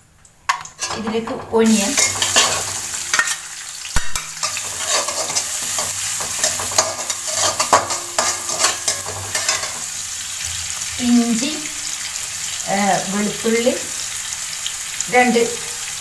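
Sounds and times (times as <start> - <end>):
metal spatula scraping wok: 0.5 - 10.2
onion sizzling in oil: 0.5 - 16.0.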